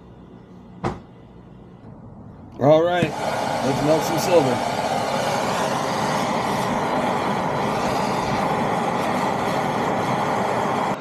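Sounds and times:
gas torch hissing: 2.6s - 11.0s.

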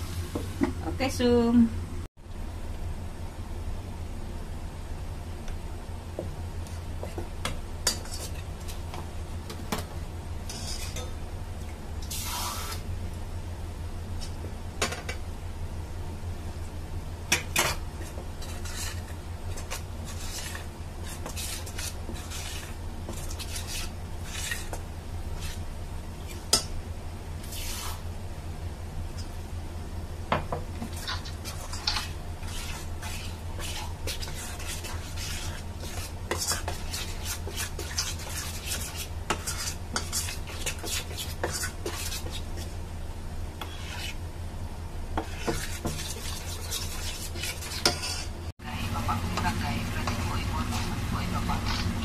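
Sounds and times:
metal spoon scraping in steel bowl: 10.5s - 11.1s, 18.4s - 24.8s, 30.9s - 42.7s, 43.6s - 44.2s, 45.2s - 48.4s, 49.4s - 52.0s.

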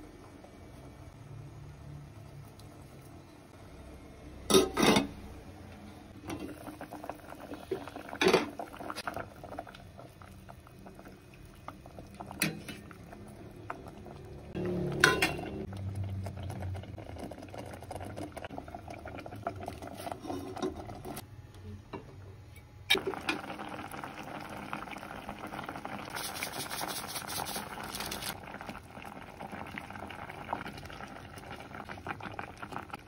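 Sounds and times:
utensils clinking on metal pot: 4.5s - 5.1s, 15.0s - 15.6s
soup bubbling in pot: 6.1s - 21.3s, 22.9s - 33.0s.

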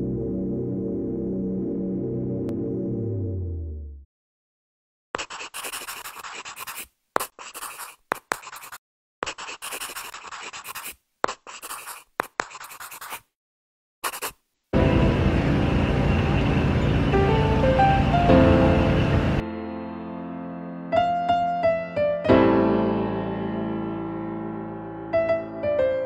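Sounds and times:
pen scratching on surface: 5.2s - 13.3s, 14.0s - 14.4s.

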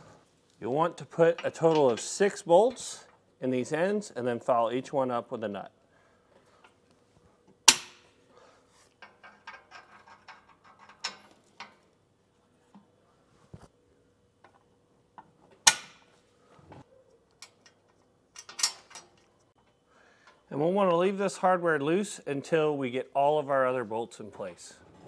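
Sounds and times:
steel bolts clinking on metal: 1.0s - 3.1s, 9.0s - 11.8s, 17.4s - 19.3s.

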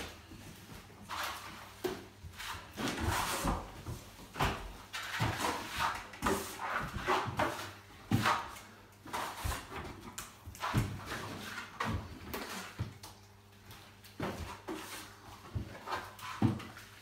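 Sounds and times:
trowels scraping plaster on wall: 2.3s - 3.8s, 4.9s - 12.9s.

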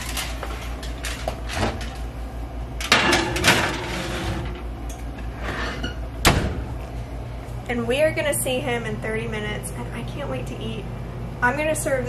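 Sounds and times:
metal pan clattering on oven rack: 2.8s - 4.6s
oven door shutting: 2.8s - 6.8s.

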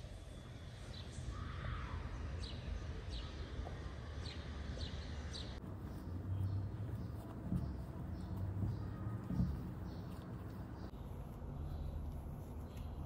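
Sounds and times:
small birds chirping: 0.0s - 13.0s
low background rumble: 3.7s - 13.0s.

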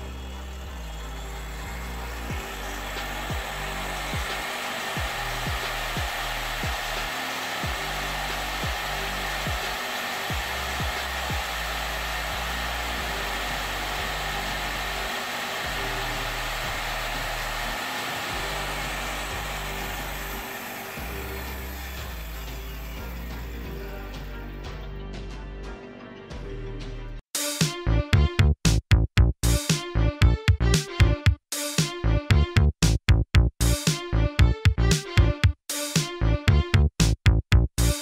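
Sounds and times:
circular saw motor whining: 0.0s - 24.6s
background music with a beat: 0.0s - 38.0s.

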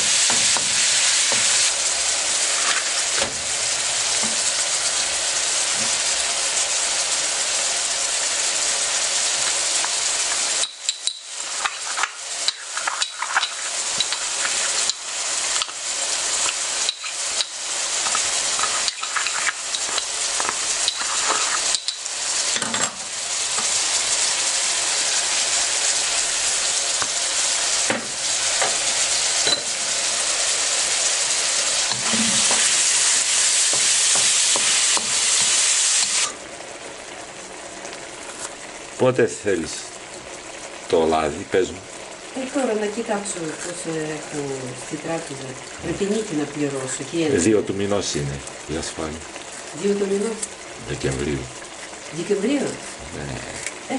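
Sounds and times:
meat sizzling in a wok: 0.0s - 53.9s
sharp crackles and clicks: 9.4s - 15.8s, 16.4s - 22.1s.

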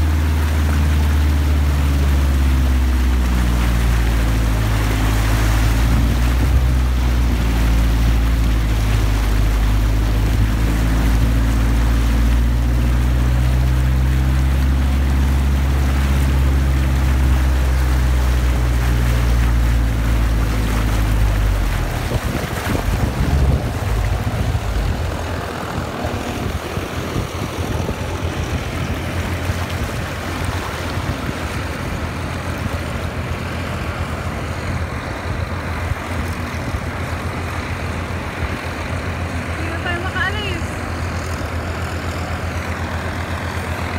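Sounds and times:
bus engine drone: 0.0s - 43.9s
floodwater rushing and splashing: 0.0s - 43.9s.

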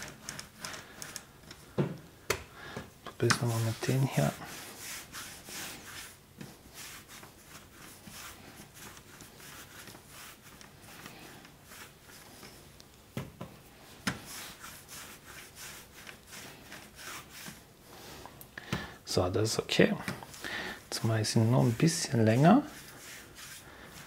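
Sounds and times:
hands rubbing dough: 0.0s - 2.1s, 2.8s - 24.0s.

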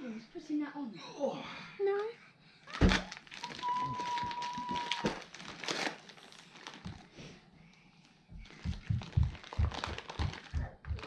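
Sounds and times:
gift paper crinkling: 2.7s - 7.2s, 8.4s - 11.0s
low thumps: 8.3s - 11.0s.

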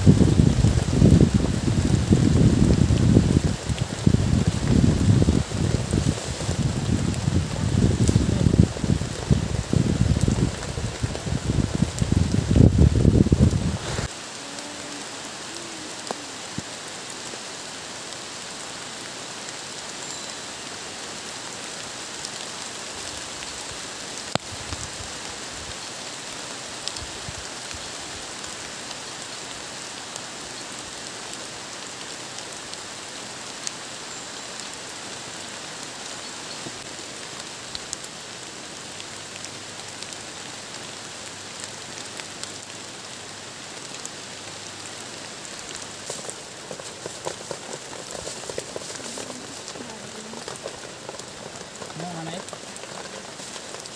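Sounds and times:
raindrops ticking: 0.0s - 53.9s
steady rain: 0.0s - 53.9s.

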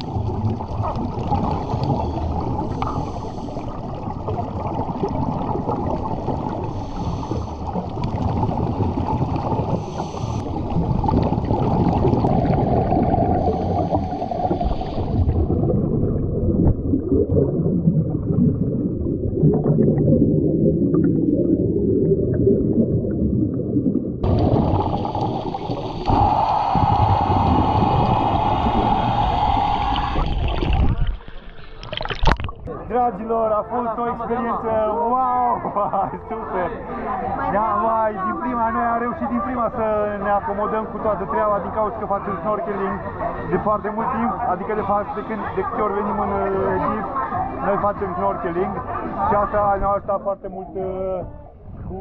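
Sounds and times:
underwater rushing and gurgling: 0.0s - 33.0s, 34.5s - 52.0s
bright hiss: 24.7s - 30.6s.

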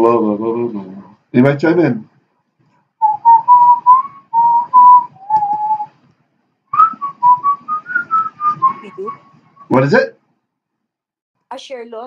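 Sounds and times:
person whistling a tune: 3.0s - 5.9s, 6.7s - 9.8s.

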